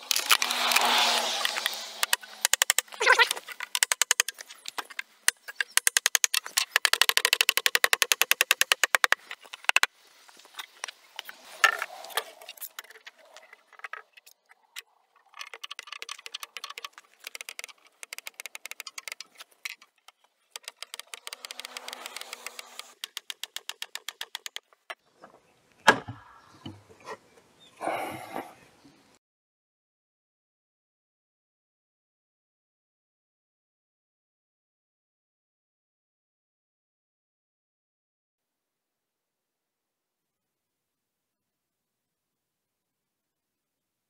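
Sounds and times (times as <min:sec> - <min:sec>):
floorboard scraping: 0:00.3 - 0:02.1.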